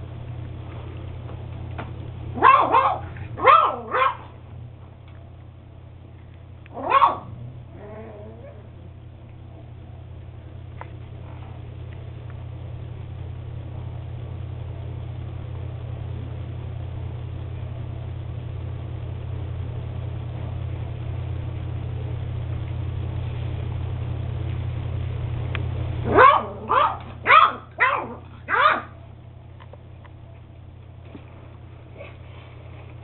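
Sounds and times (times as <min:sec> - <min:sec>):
steady low hum: 0:00.0 - 0:33.0
puppy yapping: 0:02.4 - 0:04.3, 0:06.7 - 0:08.7, 0:26.1 - 0:29.0.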